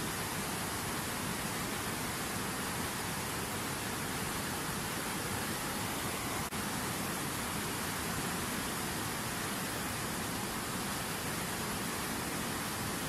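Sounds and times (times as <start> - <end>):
river rushing over rocks: 0.0 - 13.0.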